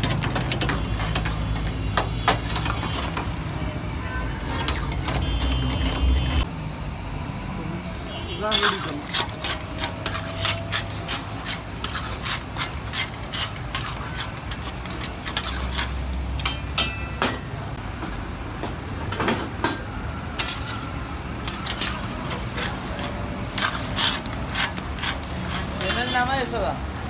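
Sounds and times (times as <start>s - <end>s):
metal ladle clinking on pan: 16.4s - 17.6s.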